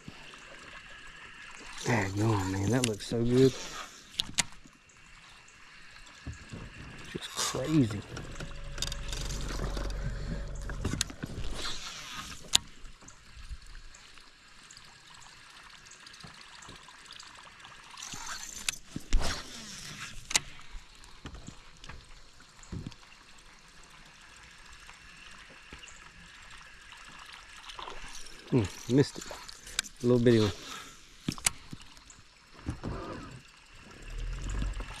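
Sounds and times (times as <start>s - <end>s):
waves lapping against a boat: 0.0s - 14.4s, 25.3s - 35.0s
low motor hum: 6.2s - 13.8s, 32.7s - 35.0s.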